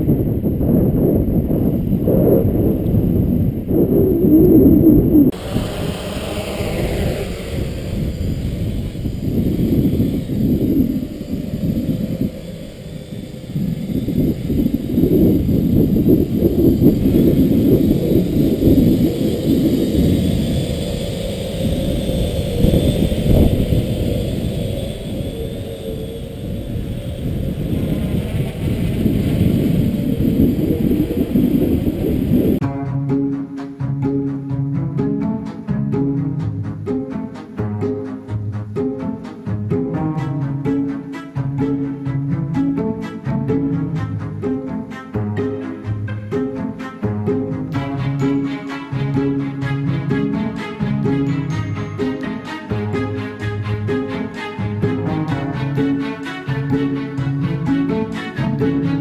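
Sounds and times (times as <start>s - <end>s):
whine falling in pitch: 0.0s - 32.6s
wind buffeting microphone: 0.0s - 32.7s.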